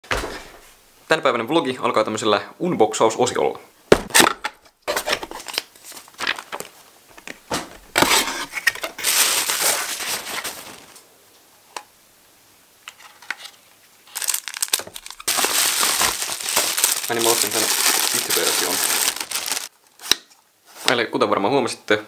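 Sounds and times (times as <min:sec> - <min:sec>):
packaging rustling and crinkling: 0:04.9 - 0:11.0, 0:13.1 - 0:20.0.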